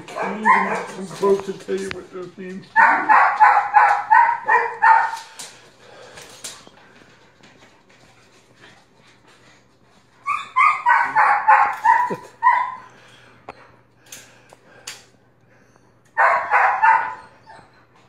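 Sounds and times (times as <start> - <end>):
dog barking: 0.0 - 1.2, 2.7 - 5.3, 10.5 - 12.9, 16.2 - 17.4.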